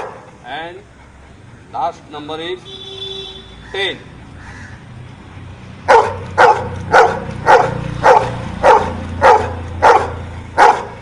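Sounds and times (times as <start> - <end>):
dog barking: 0.0 - 0.3, 5.8 - 11.0.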